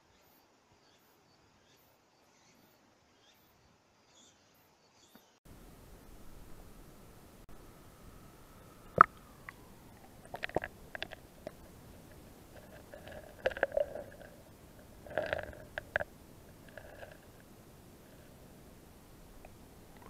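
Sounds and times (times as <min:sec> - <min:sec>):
underwater gurgling and clicking: 0:08.9 - 0:18.3.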